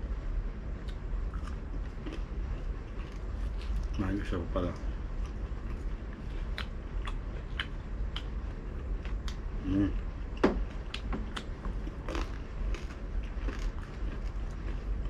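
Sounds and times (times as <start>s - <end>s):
chewing crispy food: 0.8s - 10.0s, 10.8s - 15.0s
person humming: 9.6s - 10.0s.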